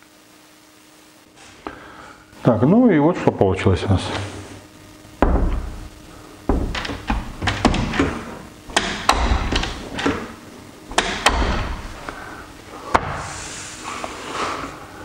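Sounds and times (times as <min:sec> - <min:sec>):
door thudding against frame: 0:05.2 - 0:05.8, 0:06.5 - 0:09.7.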